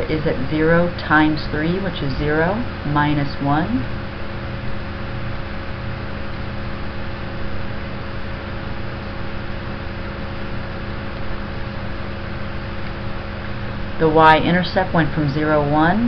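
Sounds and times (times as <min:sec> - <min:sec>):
faint even hum: 0:00.0 - 0:16.0.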